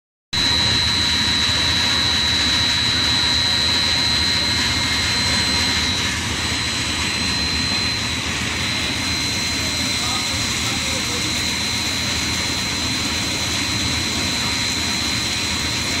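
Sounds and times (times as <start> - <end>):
high steady machine whine: 0.3 - 16.0
factory machinery running: 0.4 - 16.0.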